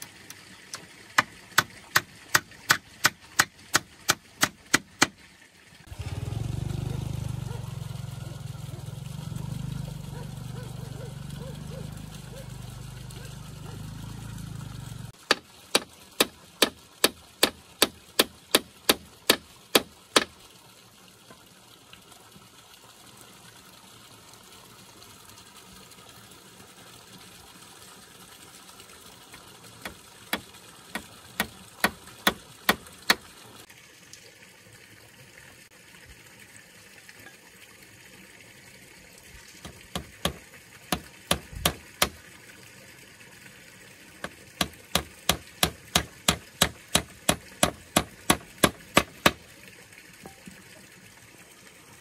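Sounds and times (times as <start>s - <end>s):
hand tool striking wood: 0.7s - 5.2s, 15.2s - 20.3s, 29.8s - 33.2s, 39.6s - 42.2s, 44.2s - 49.4s.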